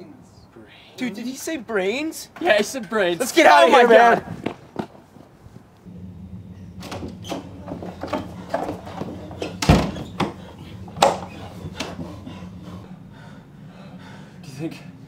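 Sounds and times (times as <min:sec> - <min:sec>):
wooden door slamming: 0:06.8 - 0:12.0
knocks and scuffles on door: 0:06.8 - 0:12.1.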